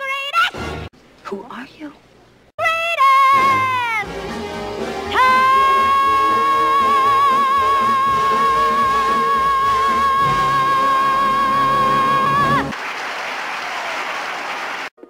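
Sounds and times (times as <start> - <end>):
orchestra playing: 4.0 - 7.2
applause: 12.7 - 15.0.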